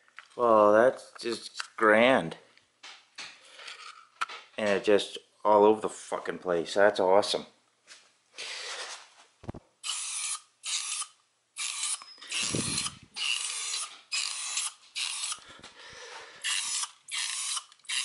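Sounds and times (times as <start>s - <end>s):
spray paint can hissing: 9.8s - 15.4s, 16.4s - 18.0s.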